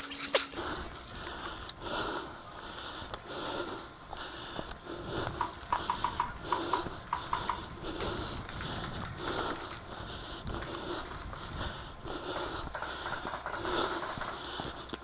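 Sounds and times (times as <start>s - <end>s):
footsteps on stony ground: 0.0s - 15.0s.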